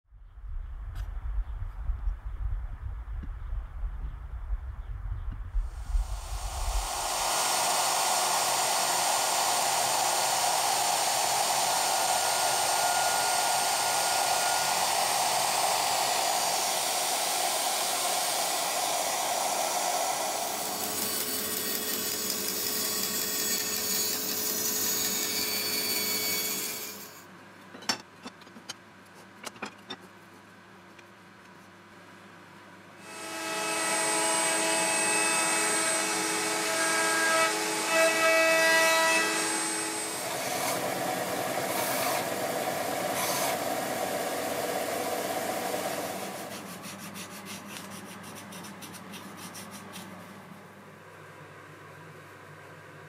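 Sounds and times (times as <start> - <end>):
dust extractor running: 5.7 - 24.7, 39.3 - 46.7
router cutting wood: 5.7 - 27.2, 33.0 - 46.8
router whining: 5.7 - 27.2, 33.0 - 46.7
bandsaw cutting: 5.8 - 27.2, 33.0 - 50.1.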